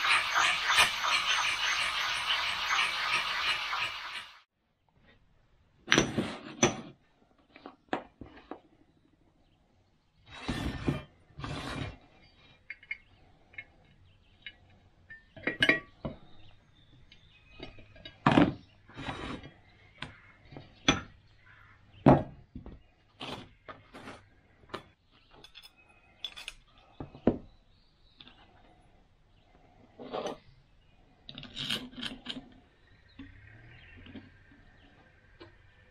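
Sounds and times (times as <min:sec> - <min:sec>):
metal scraping: 0:00.0 - 0:04.5
small metal parts clinking: 0:12.6 - 0:15.8, 0:25.3 - 0:26.8, 0:31.3 - 0:32.6.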